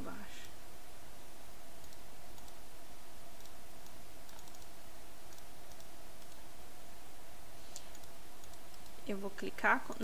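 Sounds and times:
steady background hum: 0.0 - 10.0
mouse and keyboard clicking: 1.8 - 2.6, 3.4 - 4.7, 5.3 - 6.4, 7.7 - 9.0.

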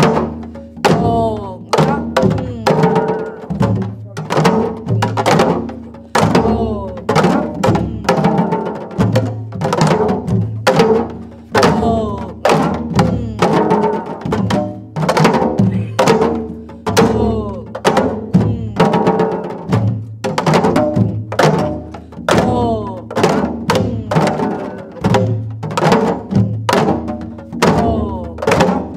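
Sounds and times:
hourglass drums played by group: 0.0 - 28.9.

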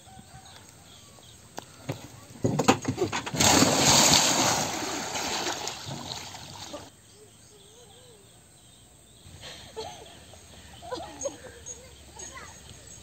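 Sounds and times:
water splashing and sloshing: 2.4 - 6.9.

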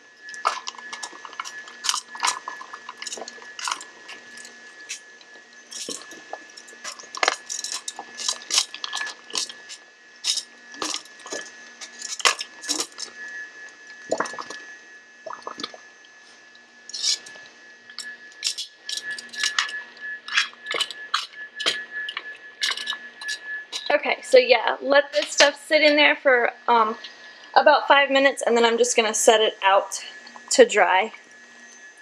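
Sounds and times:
boiling water sloshing: 0.0 - 24.1, 28.5 - 31.5
metal tongs clinking on pot: 6.8 - 9.5, 20.3 - 23.9.

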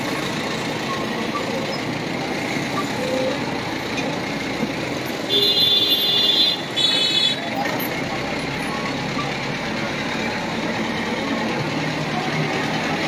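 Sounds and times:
vehicle engine and road noise: 0.0 - 13.0
high-pitched vehicle horn: 5.3 - 7.5.

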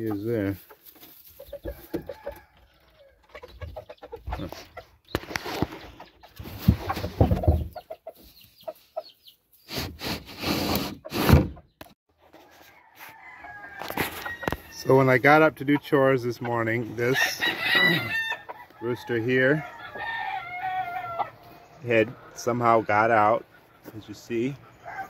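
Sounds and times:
chickens clucking: 0.0 - 9.6, 12.5 - 25.0
rustling noise: 5.2 - 7.5, 13.8 - 14.7.

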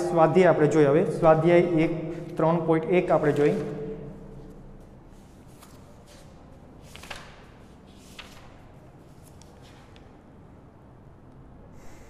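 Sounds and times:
steady low hum: 0.0 - 12.0
book pages turning: 3.2 - 3.8, 5.1 - 10.1.

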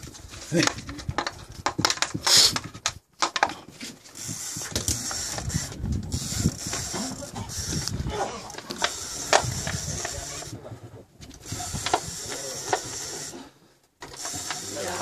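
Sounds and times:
fishing reel clicking: 4.1 - 8.0, 8.7 - 10.5, 11.4 - 13.4, 14.0 - 15.0.

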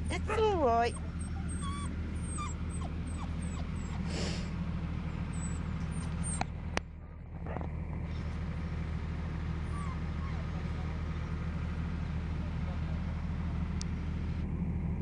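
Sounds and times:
low engine drone: 0.0 - 15.0
puppies whimpering: 0.1 - 4.4, 5.3 - 6.5, 9.6 - 10.8.

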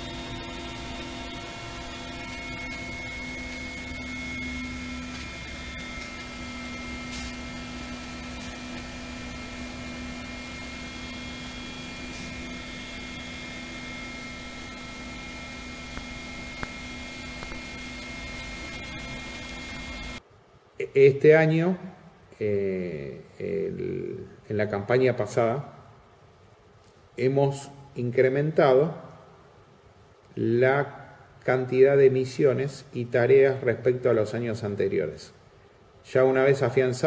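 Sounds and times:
helicopter engines and rotor: 0.0 - 7.0, 7.6 - 20.2.

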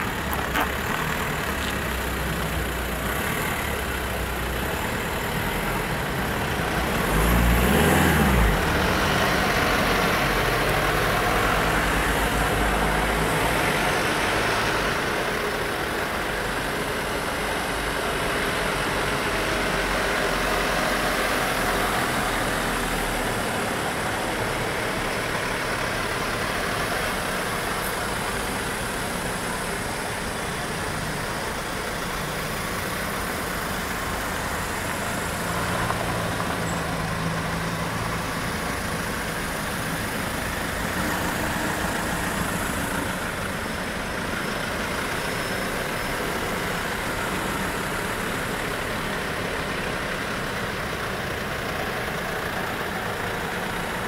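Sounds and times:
vehicles driving past: 0.0 - 54.0.

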